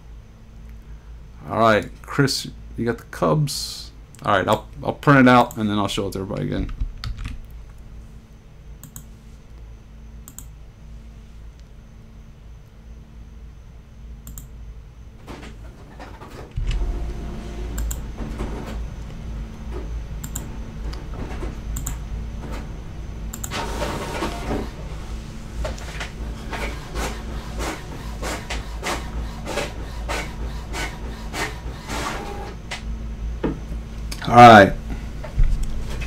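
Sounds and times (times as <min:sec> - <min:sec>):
printer motor humming: 0:15.3 - 0:33.7
printer clicks and rattles: 0:23.4 - 0:24.8, 0:25.6 - 0:32.8.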